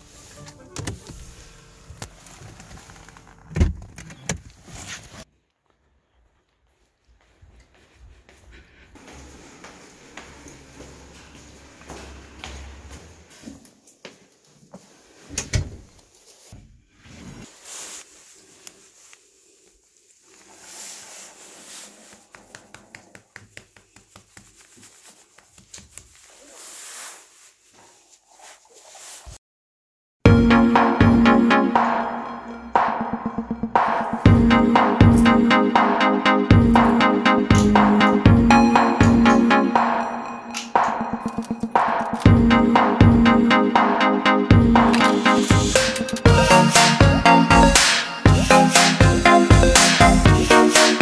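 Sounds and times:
hand rubbing cat fur: 16.2s - 29.4s.

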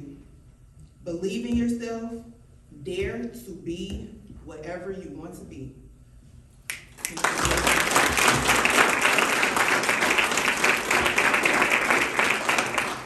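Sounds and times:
audience applause: 7.0s - 13.0s.

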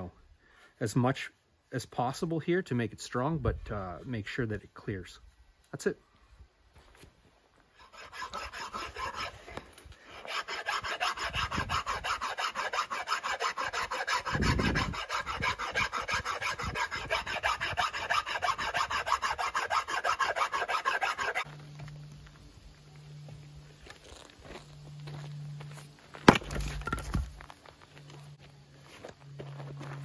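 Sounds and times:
file scraping wood: 7.8s - 21.5s.

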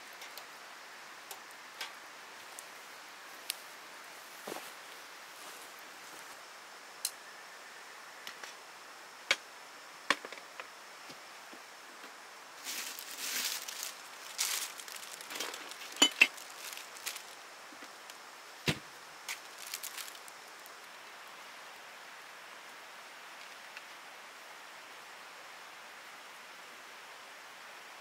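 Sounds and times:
faint hiss: 0.0s - 28.0s
rustling: 12.6s - 18.1s, 19.2s - 21.0s.

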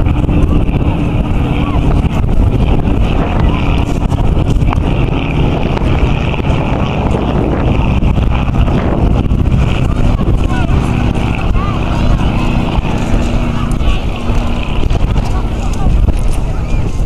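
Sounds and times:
biplane engine droning: 0.0s - 17.0s
wind rumbling on microphone: 0.0s - 17.0s.

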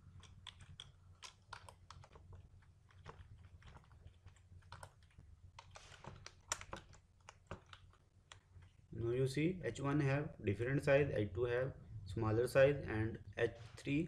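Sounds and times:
faint keyboard typing: 0.0s - 8.9s
low steady hum: 0.0s - 14.0s.

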